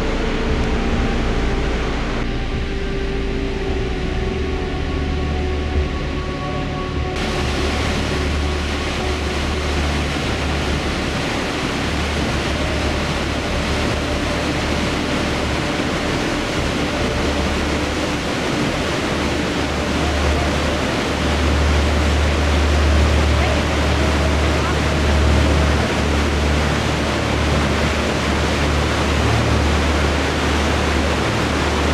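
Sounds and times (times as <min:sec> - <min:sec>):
low rumble of water: 0:00.0 - 0:31.9
waterfall rushing over rock: 0:07.1 - 0:31.9.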